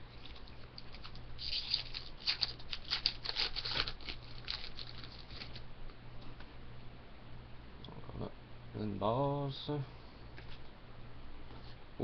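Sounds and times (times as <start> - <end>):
foil wrapper tearing and crinkling: 0.2 - 5.6.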